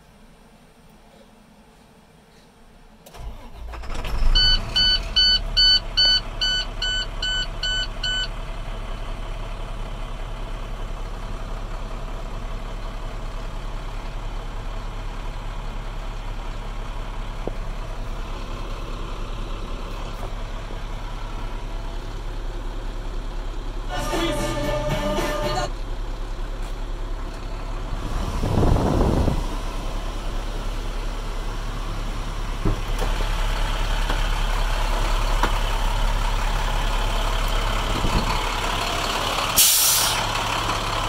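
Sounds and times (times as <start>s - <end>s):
diesel engine cranking and idling: 0.0s - 41.0s.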